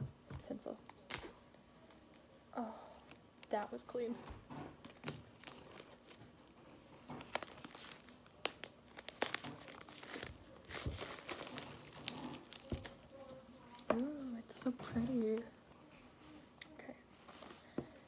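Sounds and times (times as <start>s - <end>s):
plastic wrap crinkling: 4.7s - 13.3s.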